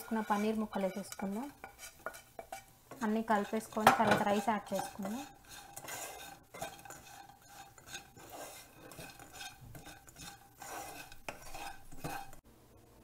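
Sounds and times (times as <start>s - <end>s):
spatula knocking against pan: 0.0s - 8.1s
spatula stirring food in pan: 0.0s - 12.5s.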